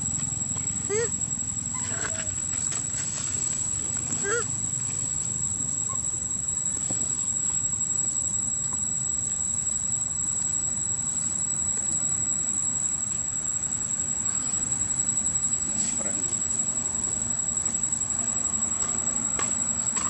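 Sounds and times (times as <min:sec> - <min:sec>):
insect chorus drone: 0:00.0 - 0:20.0.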